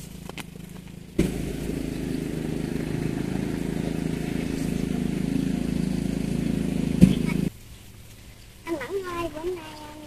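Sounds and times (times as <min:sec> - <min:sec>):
small engine running: 0:00.0 - 0:07.5.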